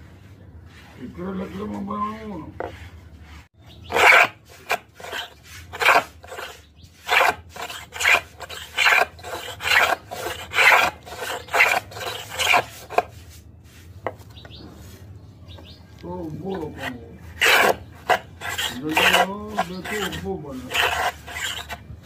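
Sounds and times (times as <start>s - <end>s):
hand plane rasping on wood: 2.6s - 13.2s, 16.6s - 21.8s.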